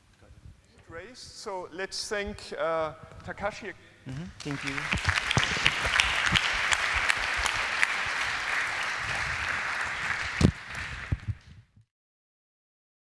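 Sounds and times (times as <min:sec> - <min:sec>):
audience applauding: 0:04.4 - 0:11.5.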